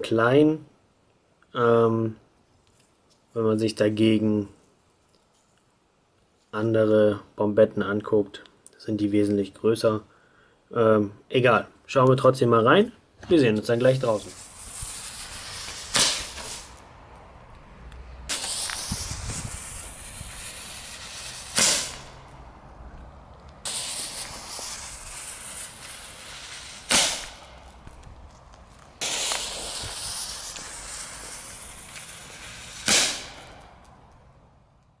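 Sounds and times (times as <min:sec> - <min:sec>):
fuse hissing: 0:13.7 - 0:16.9, 0:18.0 - 0:22.8, 0:23.5 - 0:27.9, 0:28.9 - 0:33.9
firework sharp bang: 0:14.0 - 0:16.8, 0:18.3 - 0:22.4, 0:23.6 - 0:28.0, 0:28.9 - 0:33.9.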